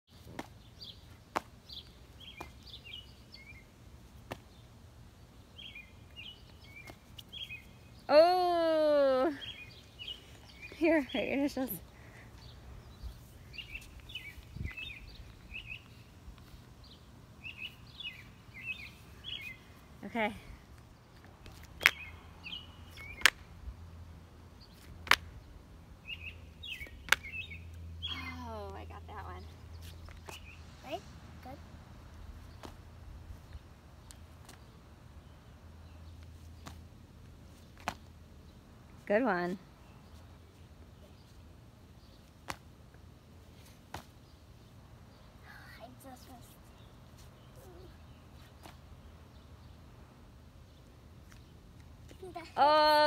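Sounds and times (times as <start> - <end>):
sandals slapping on asphalt: 0.1 - 5.0, 6.0 - 7.8, 12.3 - 19.7, 20.7 - 23.7, 24.7 - 27.9, 29.6 - 30.8, 32.0 - 39.0, 40.0 - 44.9, 46.2 - 49.6, 50.7 - 52.4
faint outdoor noise: 0.1 - 53.0
small birds chirping: 0.1 - 53.0.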